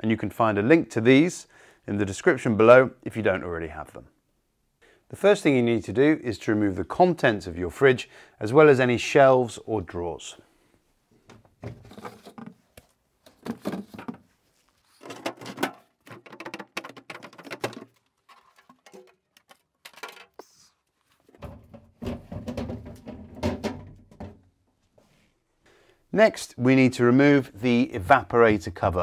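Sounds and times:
fridge shelves clinking and rattling: 13.3 - 14.2, 21.4 - 24.4.

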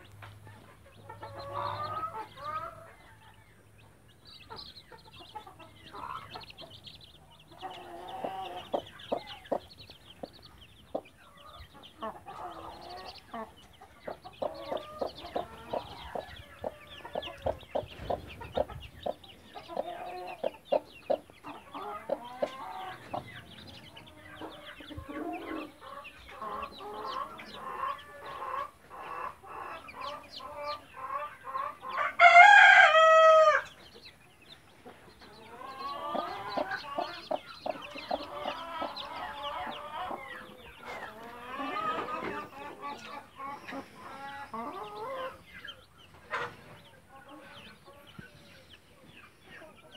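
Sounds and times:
hen clucking: 0.0 - 32.6, 33.2 - 49.9
chicks peeping: 0.0 - 49.9
rooster crowing: 32.0 - 33.7.

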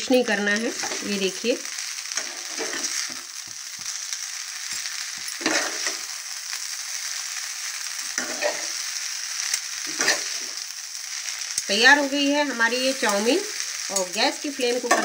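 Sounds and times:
noodles sizzling in a wok: 0.0 - 15.0
metal tongs scraping a pan: 0.1 - 1.3, 2.1 - 4.0, 4.6 - 6.1, 8.1 - 8.8, 9.8 - 10.6.

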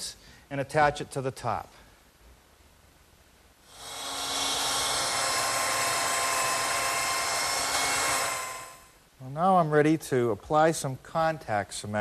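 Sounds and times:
belt sander whine: 3.7 - 8.9.

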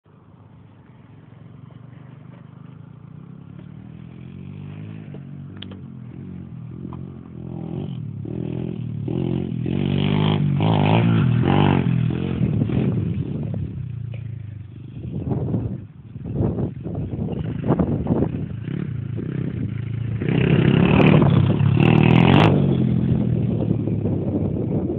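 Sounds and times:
pit bike engine revving: 1.9 - 24.2.

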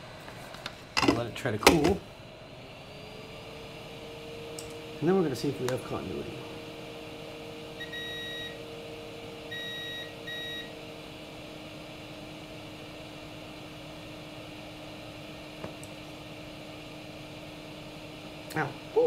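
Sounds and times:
multimeter beeps: 7.8 - 8.6, 9.5 - 10.7.

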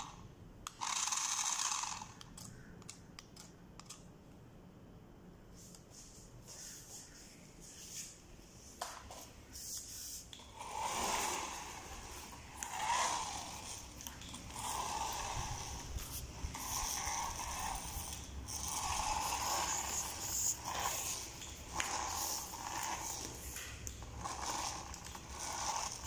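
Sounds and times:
toy car motor whirring: 0.0 - 2.6, 9.6 - 26.0.

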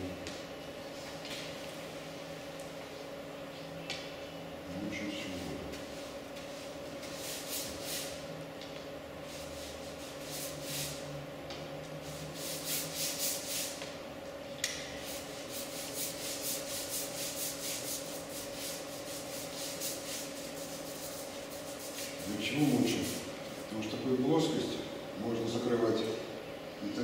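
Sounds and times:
brush swishing on wet paper: 5.4 - 8.2, 9.2 - 11.0, 12.0 - 13.8, 15.0 - 23.7.

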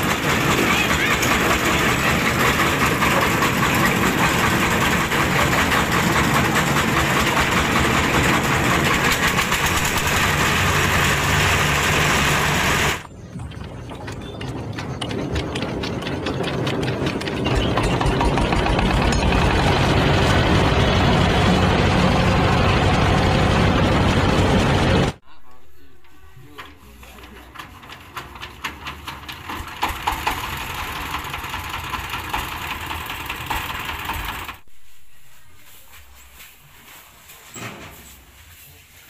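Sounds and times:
diesel engines clattering: 0.0 - 25.2, 26.5 - 34.6
engine pulsing: 0.0 - 25.2.

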